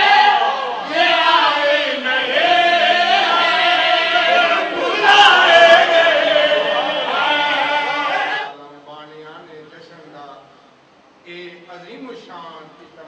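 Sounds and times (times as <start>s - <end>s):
voices chanting in chorus: 0.0s - 8.5s.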